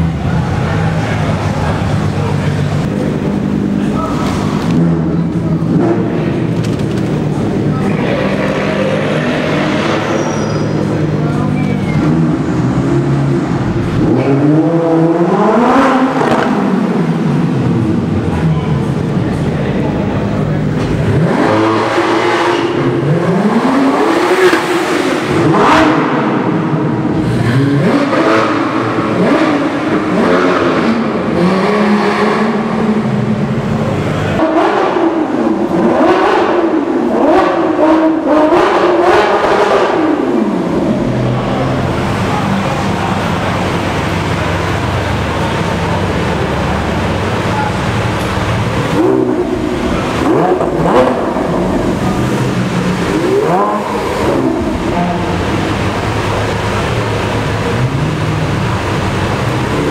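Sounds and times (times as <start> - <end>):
car engine revving in tunnel: 0.0 - 59.9.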